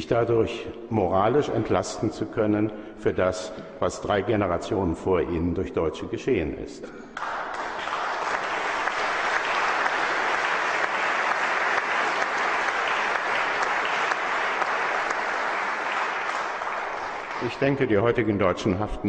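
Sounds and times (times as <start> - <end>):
crowd applauding: 7.2 - 18.0.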